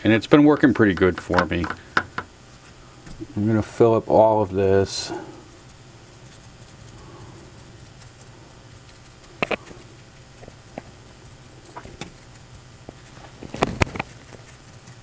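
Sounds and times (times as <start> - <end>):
low steady hum: 0.0 - 15.0
paintbrush tapping and clicking: 0.6 - 2.3.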